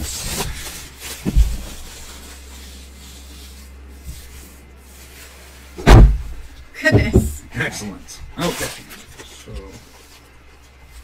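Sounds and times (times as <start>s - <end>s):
thump: 5.8s - 7.4s.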